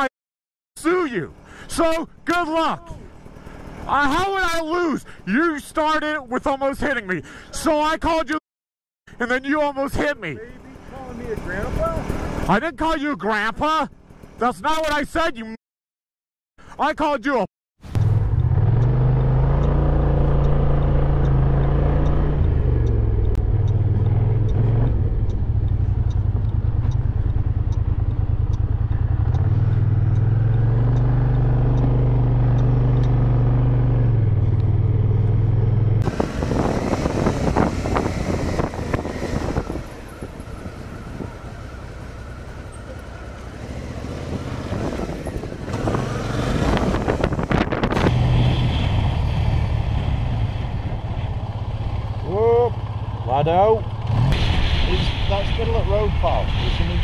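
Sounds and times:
motorcycle engine running: 2.8 - 4.6, 10.2 - 12.6, 13.9 - 14.5, 17.9 - 48.2, 49.4 - 54.2
wind buffeting: 36.0 - 41.7, 44.0 - 53.1.

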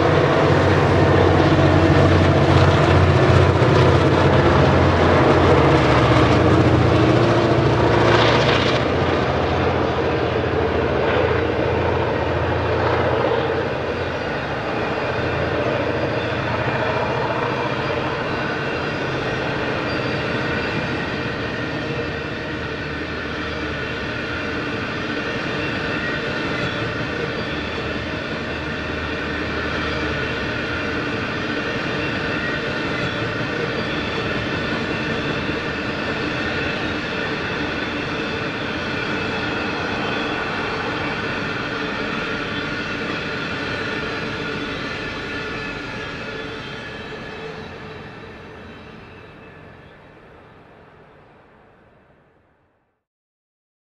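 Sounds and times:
train wheels rumbling and clattering: 0.0 - 50.2
low engine drone: 34.1 - 46.2.

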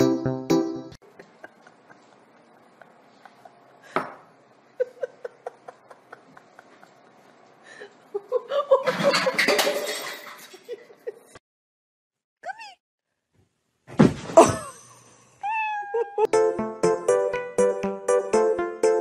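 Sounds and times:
person laughing: 1.0 - 3.6, 4.8 - 9.4, 14.4 - 15.1, 15.8 - 16.3.

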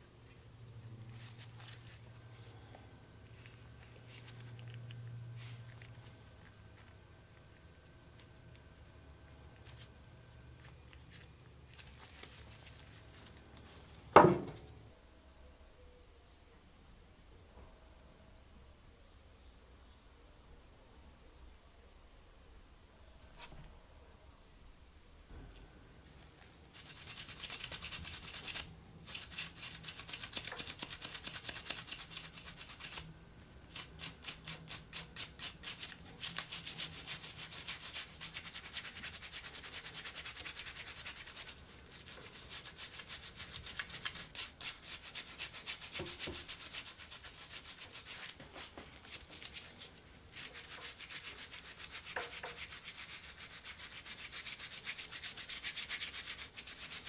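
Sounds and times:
toothbrush scrubbing metal: 26.7 - 33.1, 33.7 - 48.3, 49.1 - 57.0.

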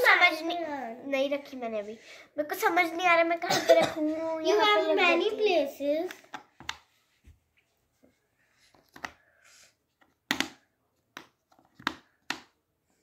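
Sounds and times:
plastic game discs clicking: 8.7 - 9.2, 10.0 - 12.5.

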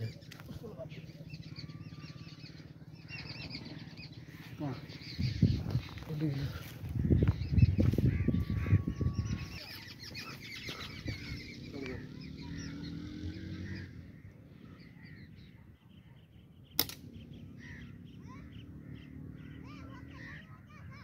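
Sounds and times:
small birds chirping and twittering: 0.0 - 21.0
slingshot snap: 16.8 - 17.1.

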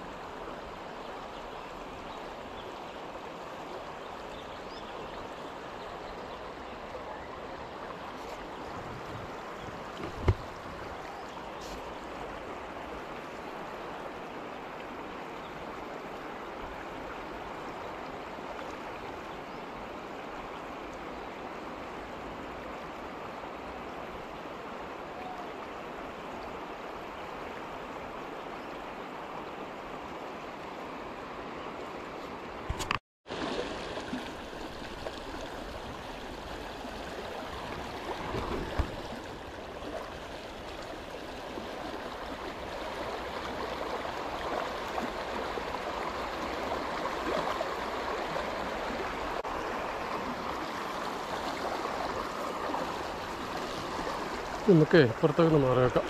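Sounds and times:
river rushing over rocks: 33.3 - 56.0.

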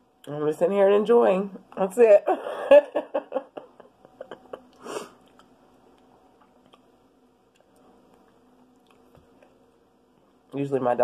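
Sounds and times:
wet chewing of pickle: 7.5 - 9.6.

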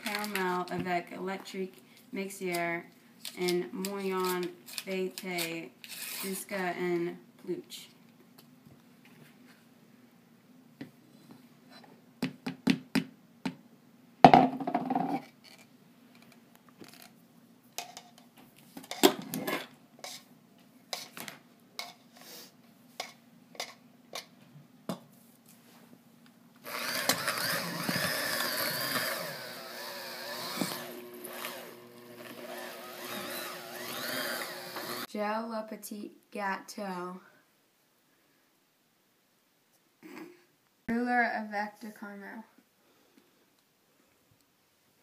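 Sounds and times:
electric hand mixer whirring: 26.6 - 35.1.

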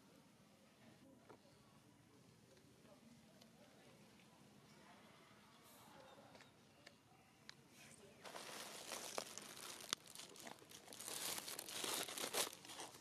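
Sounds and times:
faint rustling and crinkling: 5.6 - 13.0.

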